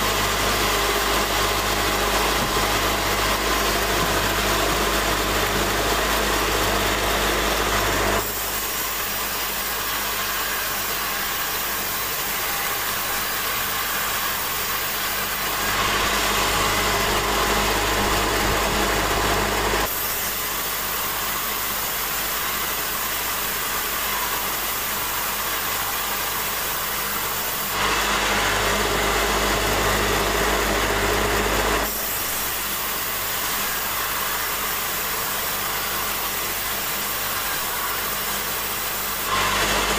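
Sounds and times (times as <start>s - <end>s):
band saw cutting wood: 0.0s - 39.9s.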